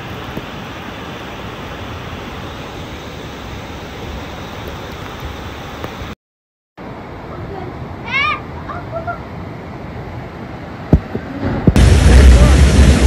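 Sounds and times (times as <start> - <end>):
floodwater rushing: 0.0 - 6.2, 6.8 - 13.0.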